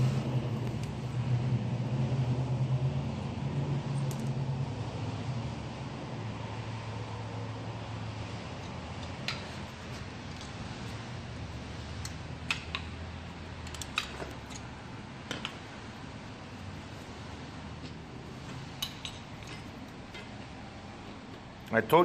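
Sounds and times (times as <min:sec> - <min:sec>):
steady low hum: 0:00.0 - 0:22.0
light metallic clicks and clinks: 0:11.9 - 0:12.9, 0:13.6 - 0:14.7, 0:17.8 - 0:20.4.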